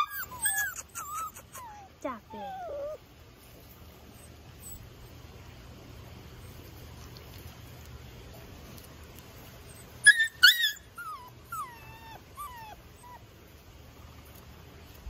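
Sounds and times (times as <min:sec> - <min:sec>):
puppy yipping: 0:00.0 - 0:03.0, 0:04.1 - 0:05.1, 0:09.7 - 0:13.2
puppy whining: 0:00.0 - 0:05.4, 0:09.6 - 0:13.4.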